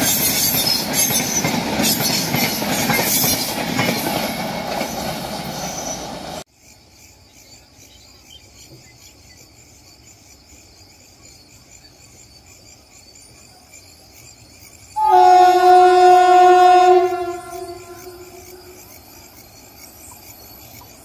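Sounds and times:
locomotive air horn blast: 15.0 - 18.8.

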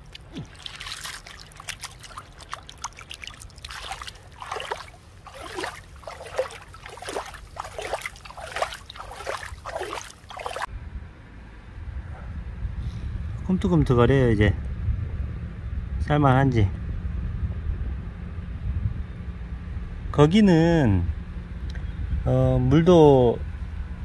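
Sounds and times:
hands splashing in stream water: 0.0 - 10.7.

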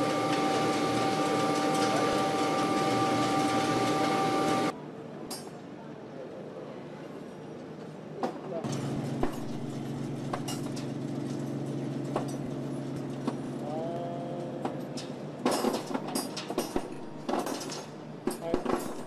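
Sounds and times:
harsh metal cutting noise: 0.0 - 4.7
rising machine whine: 0.0 - 4.7
milling machine hum: 0.0 - 4.8, 8.6 - 15.3.

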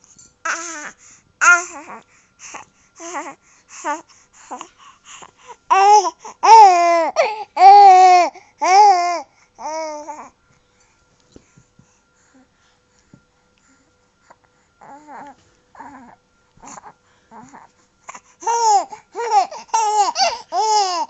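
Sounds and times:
baby babbling: 0.5 - 2.0, 3.0 - 4.7, 5.7 - 10.3, 14.8 - 21.0.

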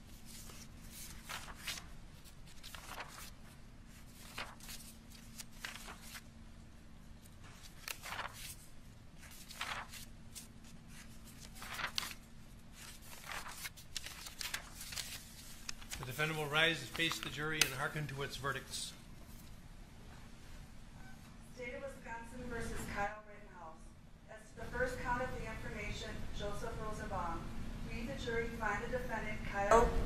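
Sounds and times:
paper rustling: 0.0 - 6.3, 7.1 - 19.6
faint steady hum: 0.0 - 30.0.

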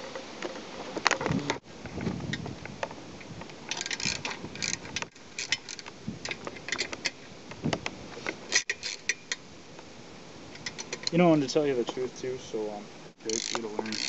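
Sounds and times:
ratchet wrench clicking: 3.7 - 5.9, 8.5 - 9.4, 13.3 - 14.0.

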